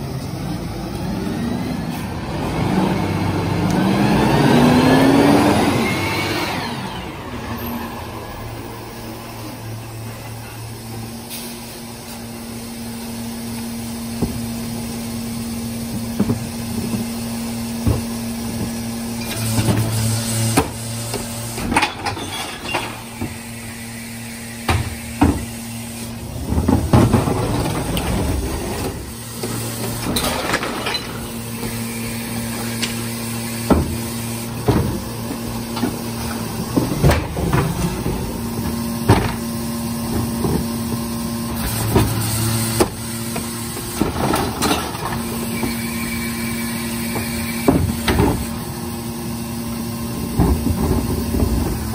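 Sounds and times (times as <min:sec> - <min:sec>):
garbage truck idling: 0:00.0 - 0:51.9
plastic carts knocking and clattering: 0:26.3 - 0:31.2, 0:34.6 - 0:41.0, 0:50.1 - 0:51.9.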